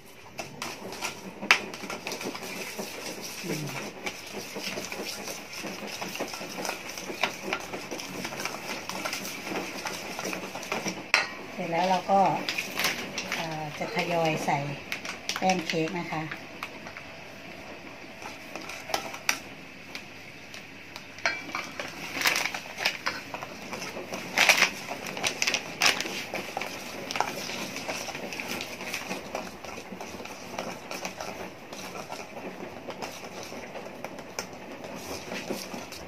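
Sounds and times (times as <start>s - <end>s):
plastic bag rustling: 21.7s - 32.1s.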